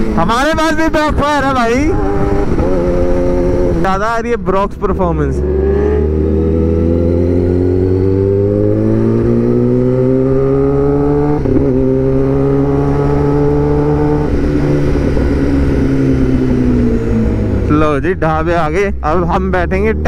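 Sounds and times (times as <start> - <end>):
motorcycle engine revving: 0.0 - 20.0.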